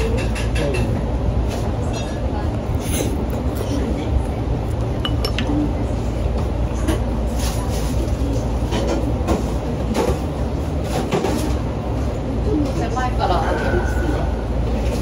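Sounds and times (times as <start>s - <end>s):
restaurant room rumble: 0.0s - 15.0s
chopsticks and tableware clinking: 5.0s - 5.6s.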